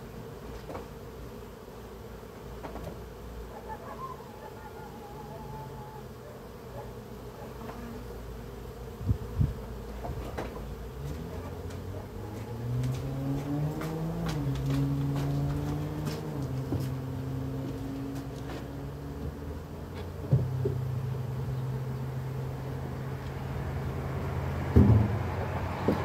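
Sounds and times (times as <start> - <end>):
honeybees buzzing: 0.0 - 26.0
sharp knocks: 24.7 - 26.0.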